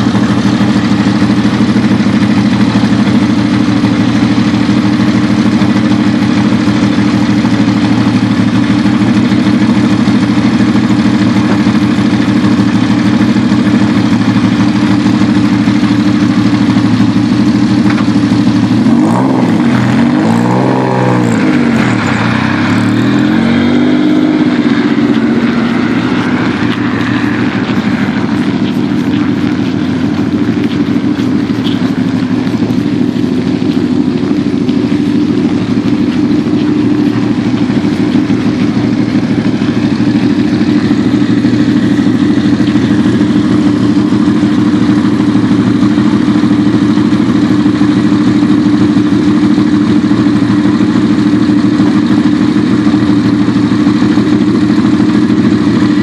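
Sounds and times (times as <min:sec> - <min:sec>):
car engine idling and revving: 0:00.0 - 0:56.0
car accelerating away: 0:18.8 - 0:38.8.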